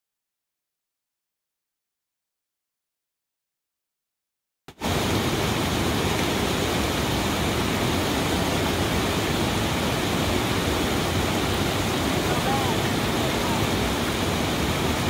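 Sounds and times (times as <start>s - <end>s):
creek water rushing over rocks: 4.7s - 15.0s.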